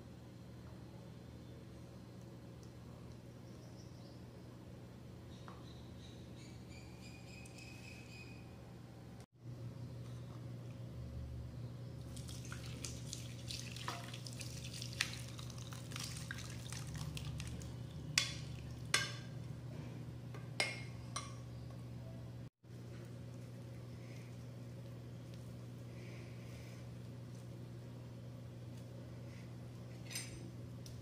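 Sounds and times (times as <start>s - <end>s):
steady low hum: 8.0s - 31.0s
liquid pouring and splashing: 12.1s - 18.9s.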